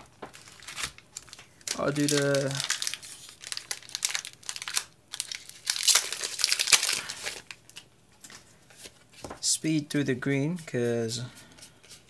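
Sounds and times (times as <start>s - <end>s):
foil wrapper crinkling and tearing: 0.0s - 7.8s.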